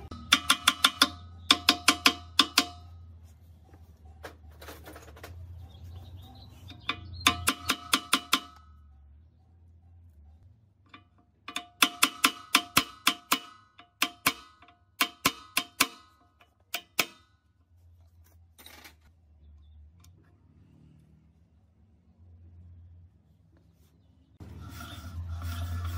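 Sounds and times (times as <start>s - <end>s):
hammer striking metal punch: 0.0s - 3.0s, 6.7s - 8.7s, 11.4s - 17.3s
metal scrape: 24.4s - 25.9s.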